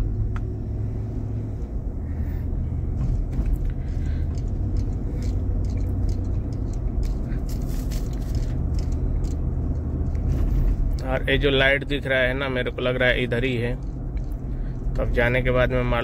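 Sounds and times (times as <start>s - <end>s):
car engine and tyres rumbling: 0.0s - 16.0s
small clicks and ticks: 4.1s - 10.2s.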